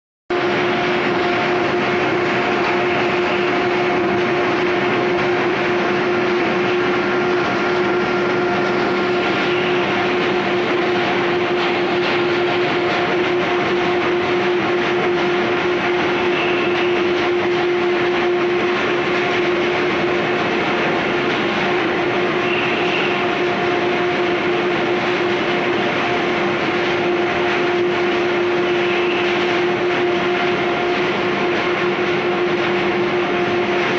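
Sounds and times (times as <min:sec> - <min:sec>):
constant machine hum: 0:00.3 - 0:33.9
conveyor machinery running: 0:00.3 - 0:33.9.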